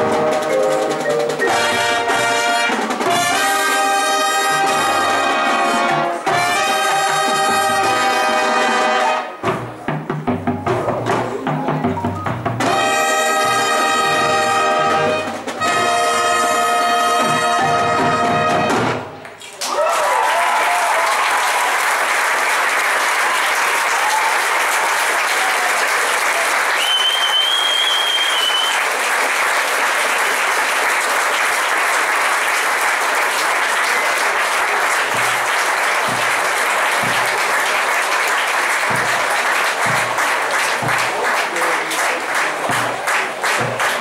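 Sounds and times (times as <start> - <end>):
bass drum beat: 9.4 - 13.0, 35.1 - 37.5, 38.8 - 41.2
audience applauding: 19.3 - 44.0
high whistle: 26.8 - 28.9.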